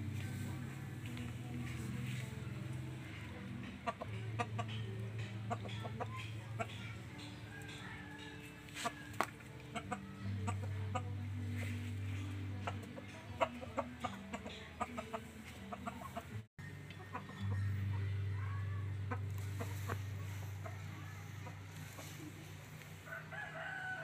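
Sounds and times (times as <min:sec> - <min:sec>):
chickens clucking: 0:00.0 - 0:24.0
low steady hum: 0:16.3 - 0:24.0.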